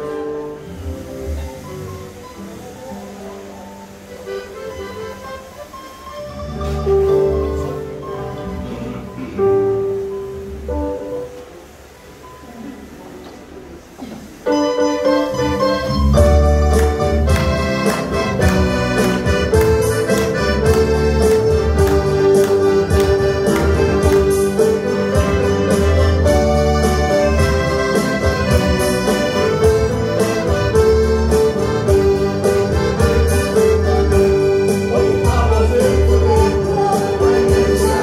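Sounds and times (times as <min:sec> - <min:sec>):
accordion chords: 0:00.0 - 0:38.0
bass line: 0:15.3 - 0:38.0
steady drum beat: 0:16.2 - 0:38.0.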